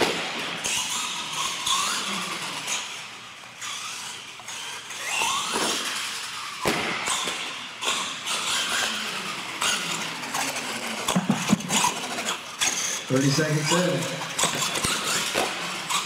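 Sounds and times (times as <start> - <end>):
toy truck motor whining: 0.6 - 16.0.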